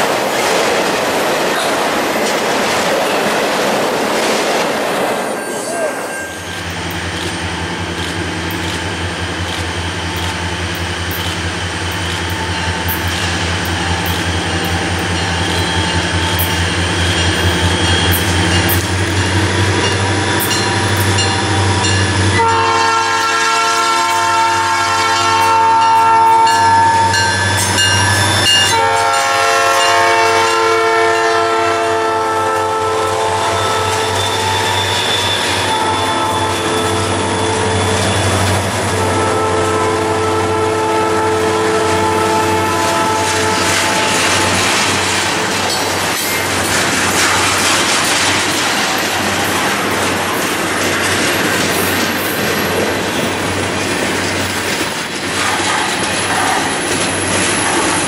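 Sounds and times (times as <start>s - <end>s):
diesel locomotives droning: 0.0s - 58.0s
freight train cars rumbling: 0.0s - 58.0s
locomotive air horn blast: 22.3s - 27.2s, 28.1s - 44.6s.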